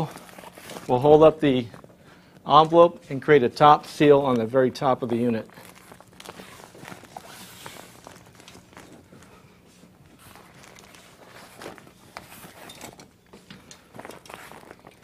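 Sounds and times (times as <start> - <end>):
fabric rustling: 0.0 - 1.7, 5.0 - 15.0
faint steady hum: 0.0 - 15.0
handling noises: 0.0 - 15.0.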